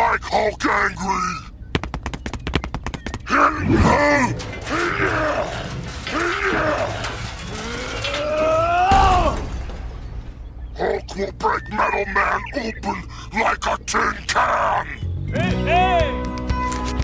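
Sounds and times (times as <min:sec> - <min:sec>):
sharp clicks: 0:01.7 - 0:03.3.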